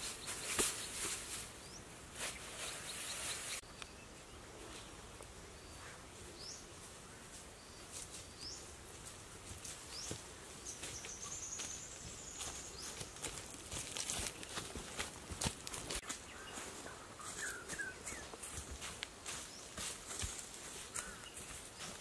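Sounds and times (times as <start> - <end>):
footsteps through leaf litter: 0.0 - 3.6, 9.0 - 22.0
grass rustling: 0.0 - 22.0
bird chirps: 9.9 - 13.2, 16.0 - 18.4.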